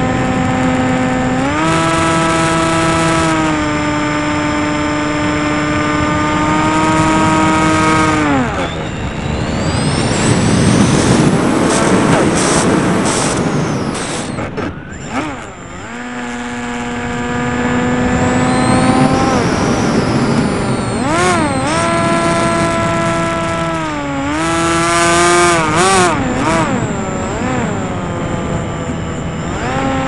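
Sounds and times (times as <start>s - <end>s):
model plane motor drone: 0.0s - 30.0s
wind rushing: 6.8s - 15.1s.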